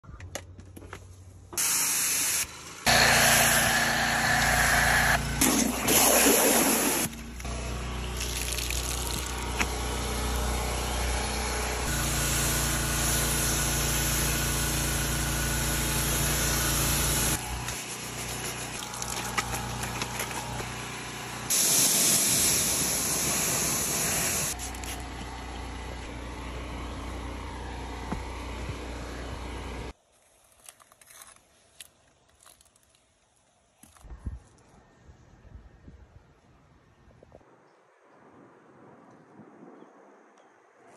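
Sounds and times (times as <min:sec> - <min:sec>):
water spray hissing: 0:01.6 - 0:07.2, 0:16.0 - 0:20.6, 0:21.5 - 0:25.2
pressure washer motor hum: 0:01.6 - 0:29.9.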